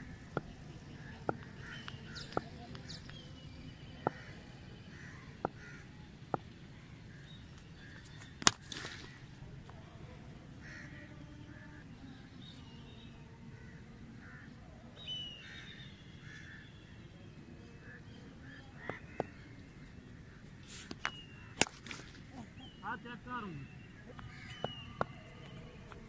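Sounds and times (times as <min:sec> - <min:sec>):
crows cawing: 0:04.1 - 0:06.0, 0:10.6 - 0:11.0, 0:13.6 - 0:14.6, 0:15.4 - 0:16.7, 0:18.6 - 0:19.6, 0:24.0 - 0:25.2
cricket bat striking ball: 0:21.5 - 0:22.2.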